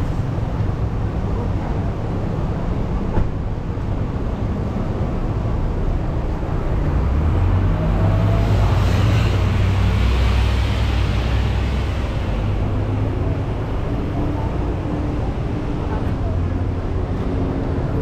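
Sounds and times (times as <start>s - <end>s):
street traffic rumble: 0.0s - 18.0s.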